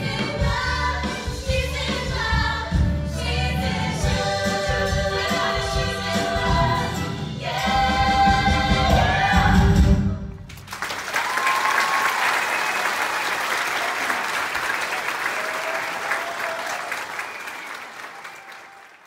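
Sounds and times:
audience applauding: 0:10.5 - 0:19.0.

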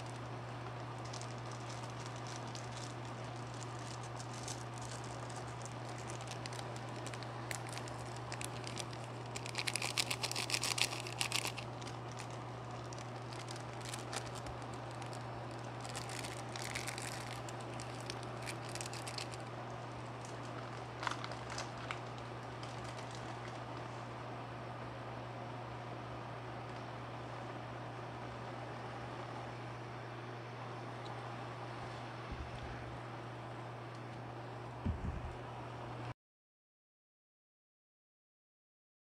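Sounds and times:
water boiling and bubbling: 0:00.0 - 0:23.8
sachets crinkling: 0:00.0 - 0:23.9
low hum: 0:00.0 - 0:36.1.

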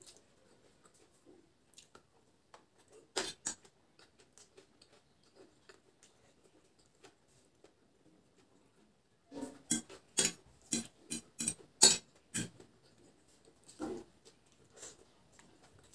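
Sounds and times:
person chewing noodles: 0:00.0 - 0:09.0, 0:09.6 - 0:15.9
sharp mouth sounds: 0:09.6 - 0:12.6.

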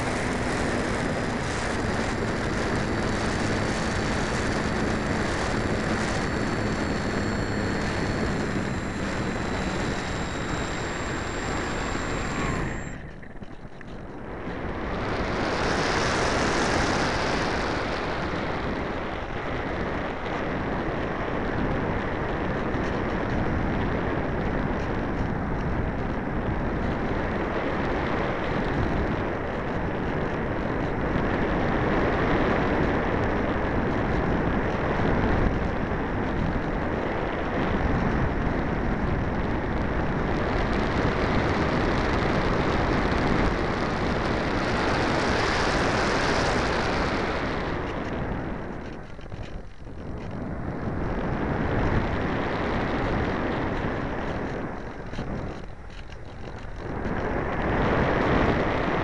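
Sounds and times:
electric motor whine: 0:00.0 - 0:59.0
wind rushing over microphone: 0:00.0 - 0:59.0.

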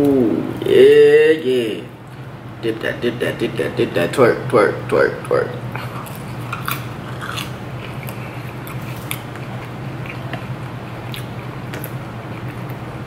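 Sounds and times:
chewing crispy fried food: 0:05.7 - 0:13.0.

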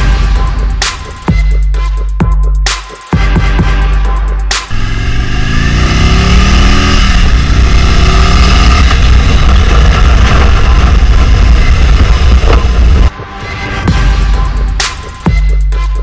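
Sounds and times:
motorcycle engine accelerating: 0:04.6 - 0:13.1.

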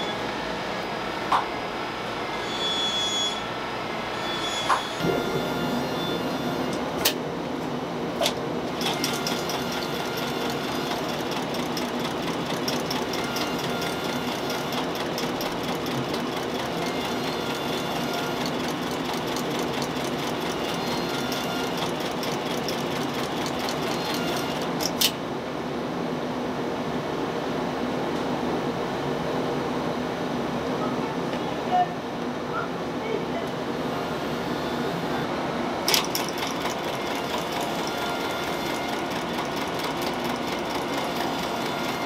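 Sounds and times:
shoe stitching machine sewing: 0:05.0 - 0:06.8, 0:08.7 - 0:25.2, 0:35.9 - 0:42.0
machine clicks: 0:35.9 - 0:38.0.

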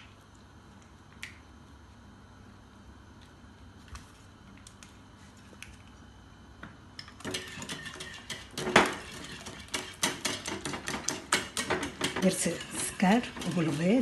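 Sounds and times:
whisk rattling against glass bowl: 0:07.2 - 0:14.0.

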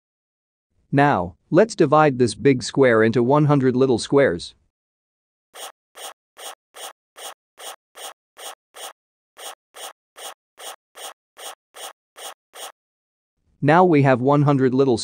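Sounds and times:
marker scratching short strokes: 0:05.6 - 0:12.8.

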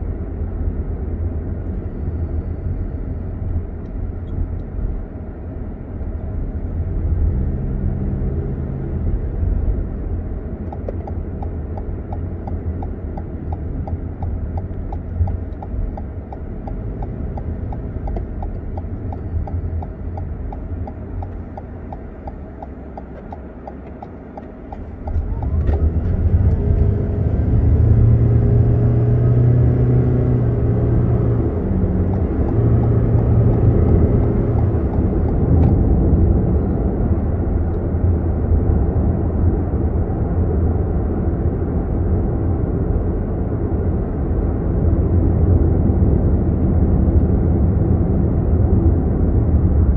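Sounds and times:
car engine and road rumble: 0:00.0 - 0:49.9
turn indicator ticking: 0:10.6 - 0:27.1, 0:29.9 - 0:36.3.

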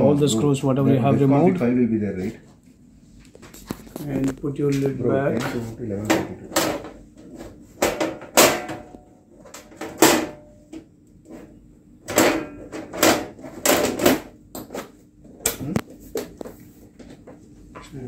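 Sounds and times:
metal cover clunking and scraping: 0:05.4 - 0:10.5, 0:12.1 - 0:14.3.

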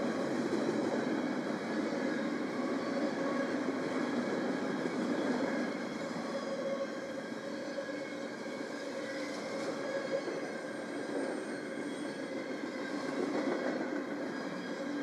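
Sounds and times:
freight train rolling on rails: 0:00.0 - 0:15.0.

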